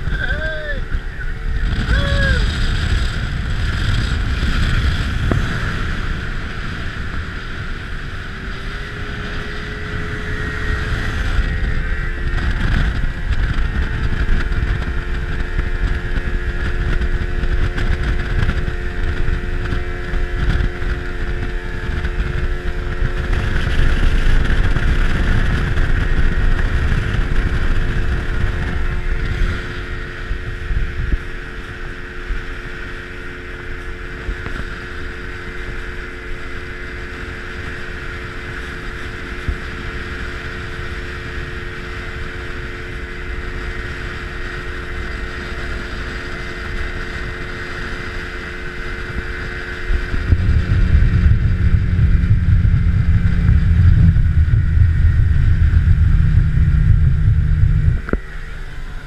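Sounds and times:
outboard motor whine: 0.0 - 59.0
wind on microphone: 0.0 - 59.0
water rushing against hull: 45.4 - 59.0.

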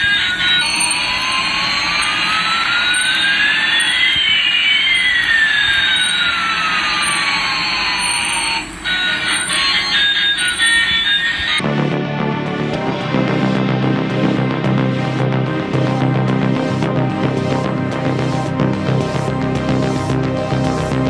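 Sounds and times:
electronic jet engine hiss: 0.0 - 11.6
rising and falling whistling tones: 0.0 - 11.6.

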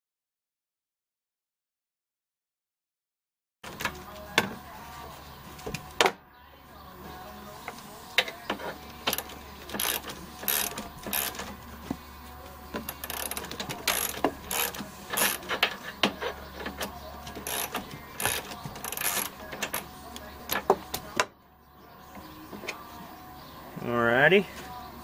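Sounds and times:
ratchet wrench clicking: 9.1 - 11.5, 12.9 - 19.8.

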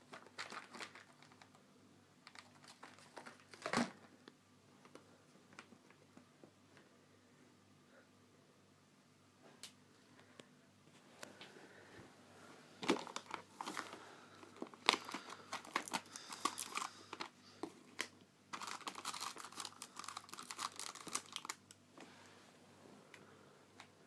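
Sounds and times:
plastic pouch crinkling: 0.0 - 1.6, 2.2 - 4.1, 12.8 - 21.8.

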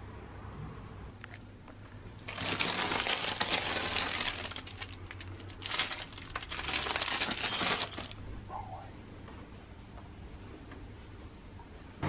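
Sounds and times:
plastic wrapping crinkling: 2.2 - 8.2
steady low hum: 8.1 - 12.0.

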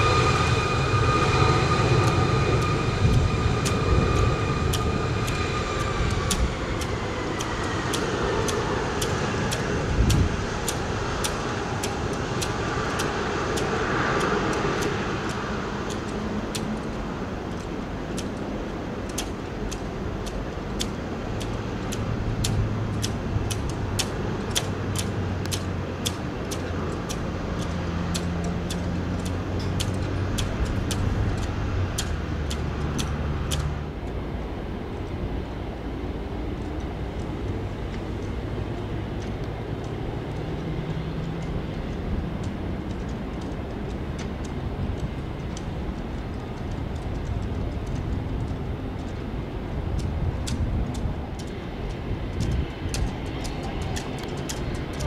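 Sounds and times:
jet engines humming: 0.0 - 55.0
sharp ticks: 2.0 - 34.2, 49.8 - 55.0.

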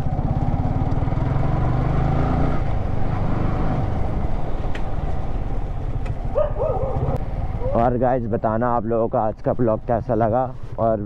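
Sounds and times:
motorcycle engine running: 0.0 - 8.0.

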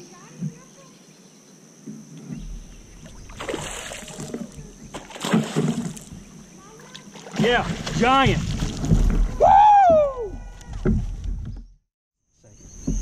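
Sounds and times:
fish splashing at surface: 3.0 - 6.2.

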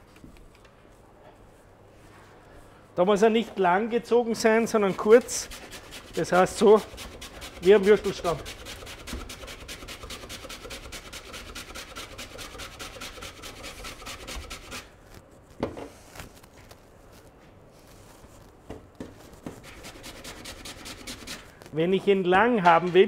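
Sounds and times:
root grated on metal grater: 4.8 - 14.8.

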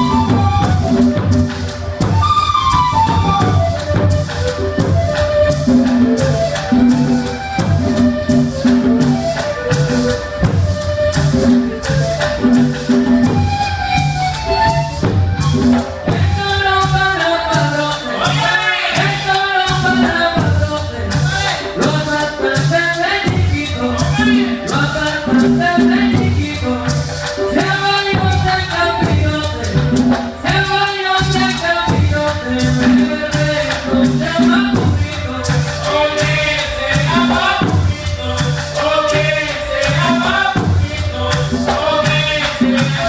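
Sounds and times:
cane flutes playing melody: 0.0 - 18.5
hand drums: 0.0 - 43.0
maraca shaking: 0.0 - 43.0.

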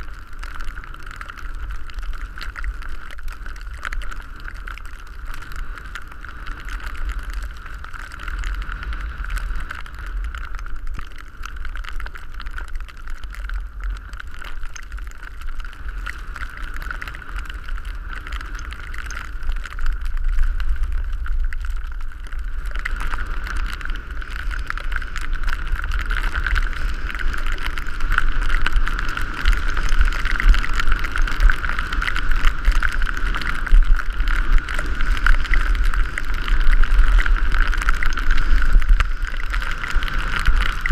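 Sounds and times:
skis sliding on snow: 5.1 - 10.7, 22.4 - 40.9
wind buffeting microphone: 12.6 - 40.9.

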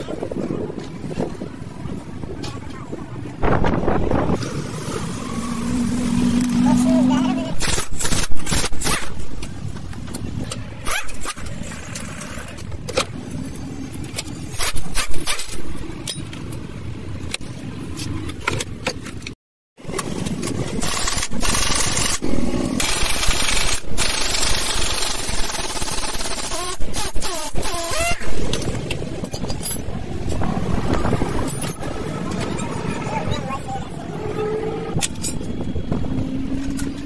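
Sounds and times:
pneumatic impact wrench running: 7.6 - 9.2, 20.8 - 28.3.

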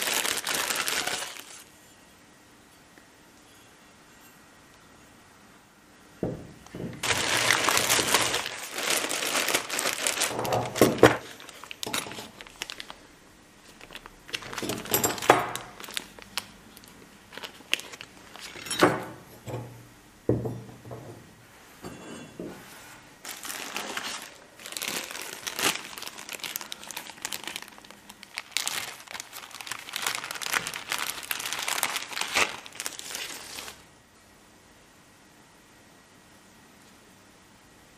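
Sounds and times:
plastic bags crinkling: 0.0 - 1.7, 6.9 - 18.8, 23.2 - 33.9.

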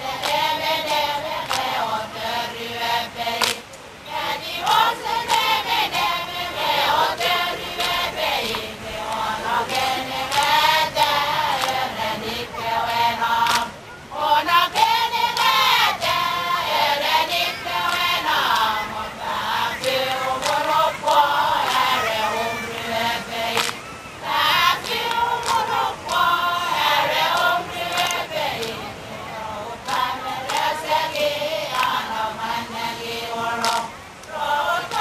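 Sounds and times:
women chanting in unison: 0.0 - 35.0
sharp hand claps: 0.2 - 1.8, 3.4 - 3.8, 4.6 - 5.6, 7.2 - 10.6, 11.5 - 11.8, 13.4 - 13.7, 14.7 - 15.7, 17.8 - 18.7, 19.8 - 21.9, 23.5 - 23.9, 24.8 - 26.3, 27.3 - 28.8, 29.9 - 32.0, 33.6 - 35.0.

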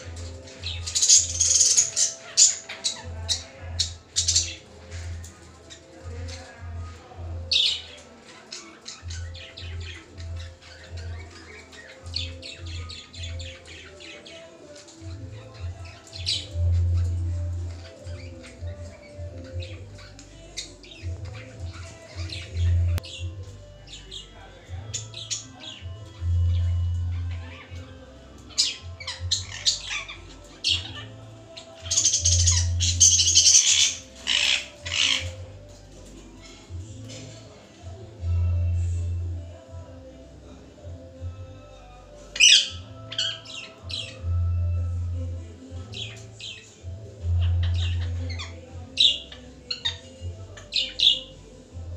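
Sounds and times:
parakeets chirping and squawking: 0.0 - 39.6, 41.6 - 51.8
background music with low bass: 0.0 - 51.9
parakeet squawking: 0.5 - 4.6, 25.0 - 35.6, 42.3 - 44.2, 46.0 - 51.3.

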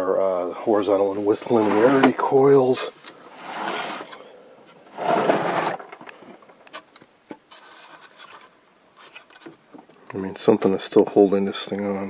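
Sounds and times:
metal chassis scraping and rubbing: 1.3 - 2.2, 3.3 - 4.2, 4.9 - 6.1.

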